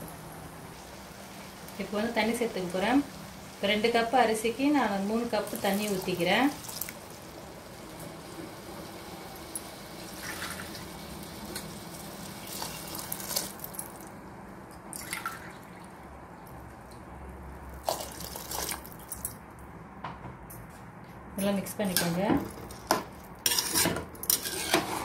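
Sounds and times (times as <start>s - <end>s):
water pouring into a pot: 5.4s - 7.3s, 9.5s - 14.1s, 14.9s - 16.0s, 17.8s - 19.3s.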